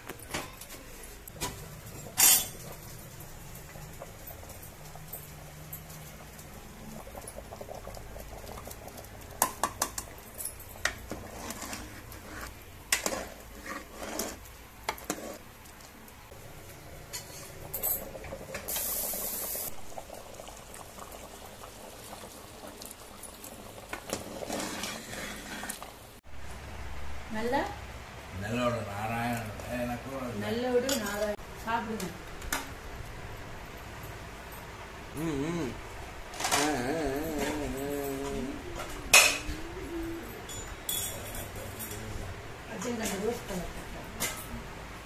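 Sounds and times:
gravy bubbling in a pot: 0.8s - 26.2s.

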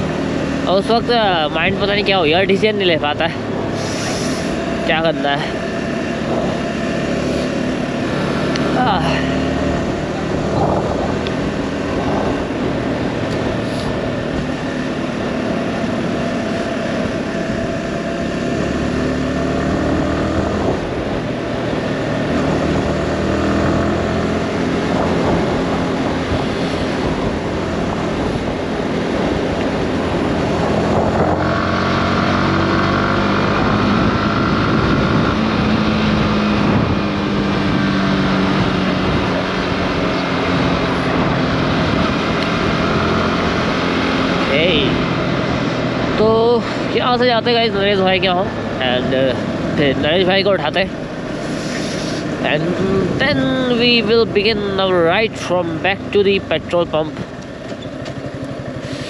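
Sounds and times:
motorcycle engine cruising: 0.0s - 59.0s
wind and road noise: 0.0s - 59.0s.

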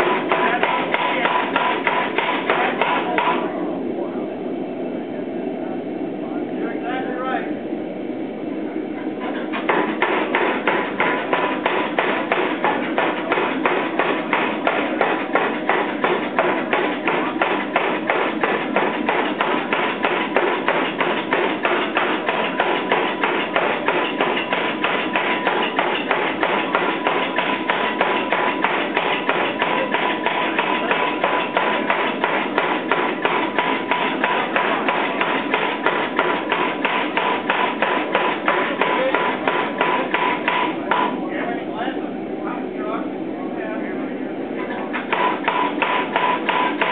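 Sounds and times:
air hammer striking hot steel: 0.0s - 3.5s, 9.5s - 41.2s, 45.0s - 46.9s.

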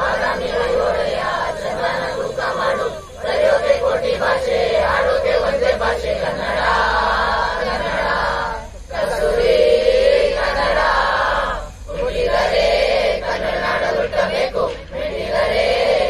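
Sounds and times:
group singing in unison: 0.0s - 16.0s.

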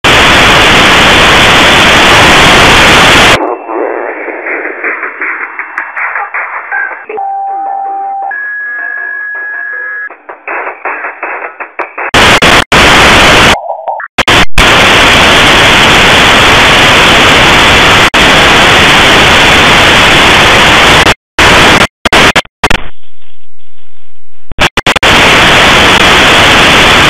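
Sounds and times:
shortwave radio static hiss: 0.0s - 7.0s, 11.9s - 13.6s, 14.2s - 22.9s, 24.6s - 27.0s.

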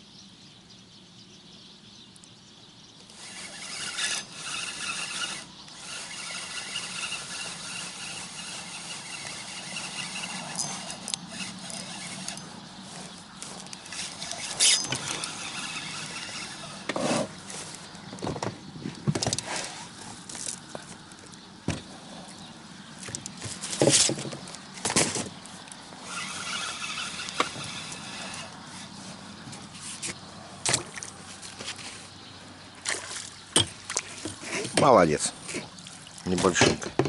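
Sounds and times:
fishing reel squeaky whine: 3.0s - 18.0s, 25.4s - 29.3s.

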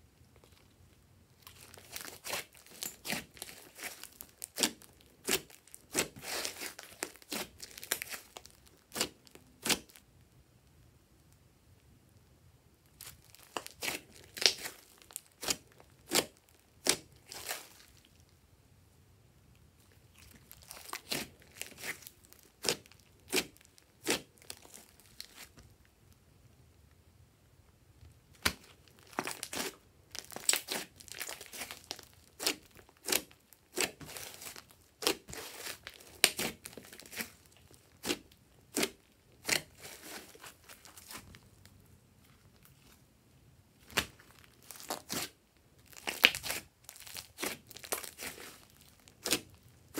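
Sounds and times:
slime sticky pops and crackles: 46.0s - 48.4s.

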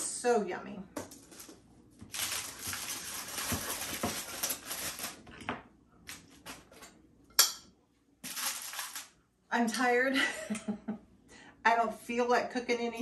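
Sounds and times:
utensil scraping foil-lined pan: 2.2s - 5.3s, 8.3s - 9.1s.

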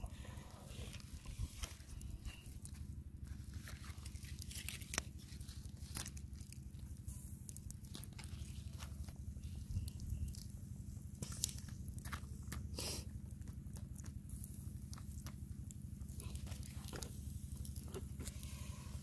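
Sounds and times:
low rumble: 0.0s - 12.0s
wood fire crackling: 0.0s - 19.0s.

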